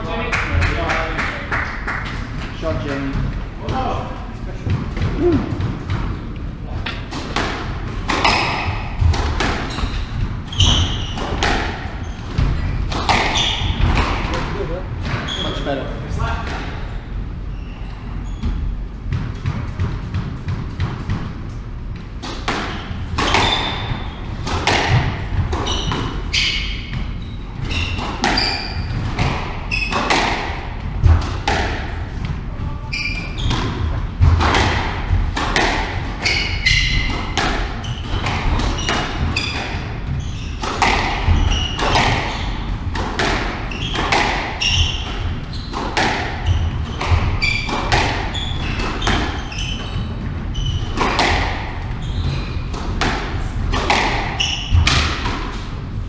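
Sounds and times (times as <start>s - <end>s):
squash racket hitting ball: 4.6s - 15.2s, 18.4s - 56.0s
ball hitting walls: 6.8s - 15.4s, 22.2s - 27.1s, 27.7s - 32.4s, 33.3s - 49.5s, 50.2s - 55.7s
shoes squeaking on wooden floor: 8.2s - 14.1s, 15.1s - 15.7s, 17.5s - 19.1s, 25.5s - 30.3s, 32.4s - 34.0s, 36.2s - 52.8s.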